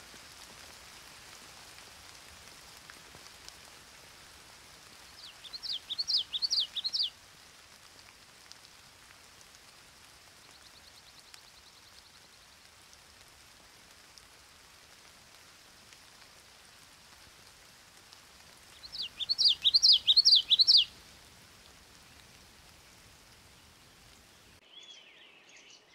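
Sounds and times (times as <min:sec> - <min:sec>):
light rain hiss: 0:00.0 - 0:25.9
songbird singing: 0:05.0 - 0:07.1, 0:18.7 - 0:21.0, 0:22.0 - 0:25.9.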